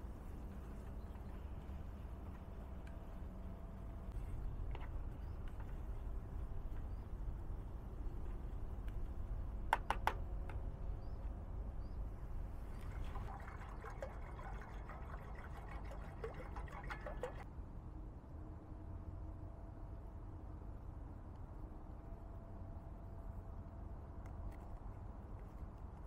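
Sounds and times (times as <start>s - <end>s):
low steady rumble: 0.0s - 26.0s
liquid pouring and splashing: 12.7s - 17.4s.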